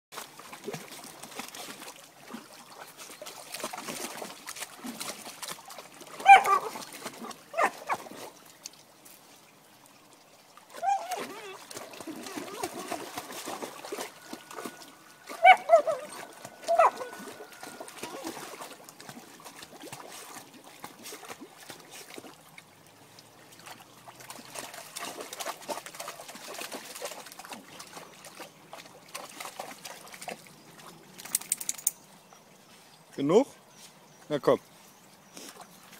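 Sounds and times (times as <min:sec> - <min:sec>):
dog splashing in water: 0:00.2 - 0:09.0, 0:10.6 - 0:31.9
water trickling: 0:00.2 - 0:35.9
dog squeaky whine: 0:15.3 - 0:18.2.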